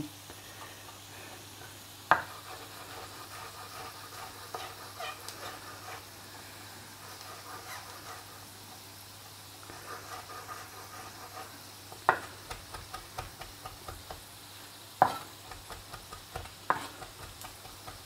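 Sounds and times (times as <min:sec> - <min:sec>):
faint frying sizzle: 0:00.0 - 0:18.0
knife chopping on wooden board: 0:02.1 - 0:02.6, 0:12.1 - 0:14.2, 0:15.0 - 0:18.0.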